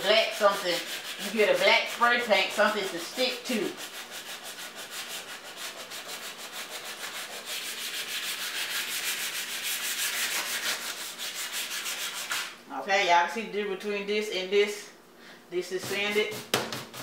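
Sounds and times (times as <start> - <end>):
sandpaper rubbing painted metal: 0.0 - 12.6.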